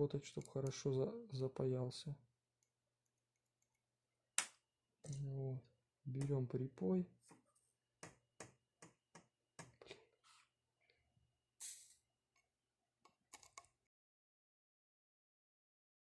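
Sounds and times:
soldering iron hiss: 0:11.6 - 0:12.0.

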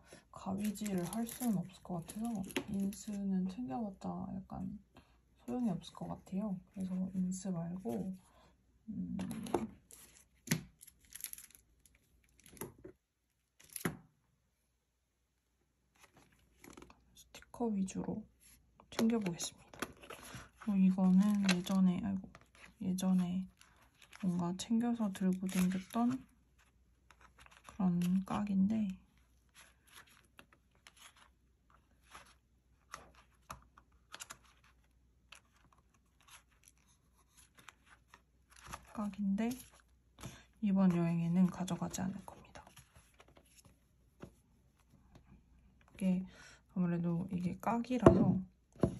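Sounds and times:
plastic rustles and crinkles: 0:00.4 - 0:03.3, 0:18.4 - 0:44.9.

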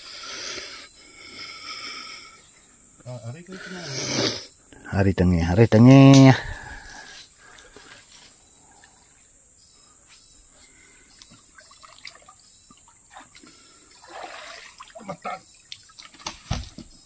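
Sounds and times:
bird chirps: 0:08.2 - 0:14.1, 0:14.8 - 0:16.2
water trickling: 0:10.8 - 0:16.6.

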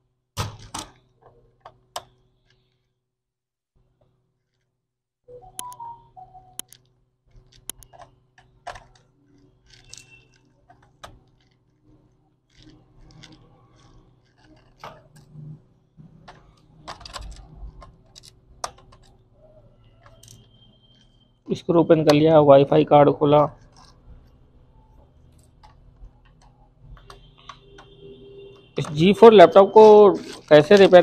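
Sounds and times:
screwdriver clicks and scrapes: 0:06.6 - 0:11.9, 0:12.5 - 0:15.4, 0:16.3 - 0:19.2, 0:19.8 - 0:21.2, 0:23.4 - 0:31.0.

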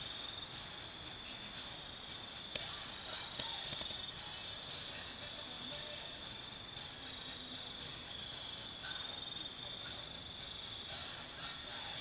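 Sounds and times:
night insects chirring: 0:00.0 - 0:12.0.

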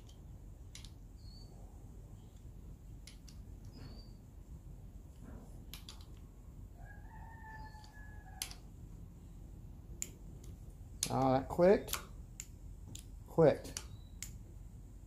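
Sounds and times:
rooster crowing: 0:06.7 - 0:08.6.

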